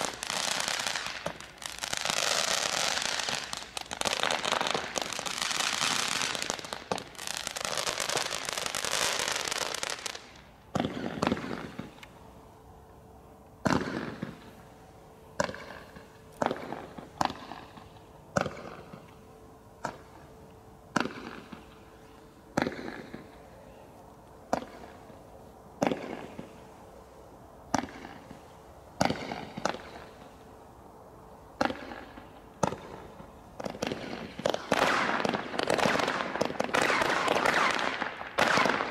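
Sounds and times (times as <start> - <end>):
firework bangs: 0.0 - 12.0, 13.6 - 14.6, 15.4 - 19.1, 20.9 - 21.9, 22.5 - 23.4, 25.8 - 26.7, 27.7 - 30.3, 31.6 - 38.9
firework crackling: 0.0 - 12.2, 13.6 - 19.1, 24.5 - 30.5, 31.5 - 38.9.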